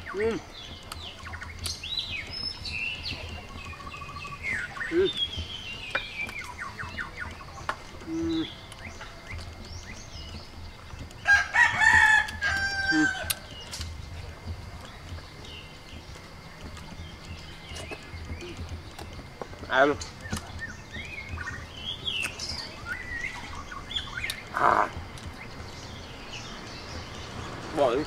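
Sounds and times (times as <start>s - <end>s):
small birds chirping: 0.0s - 28.0s
rooster crowing: 11.2s - 13.5s.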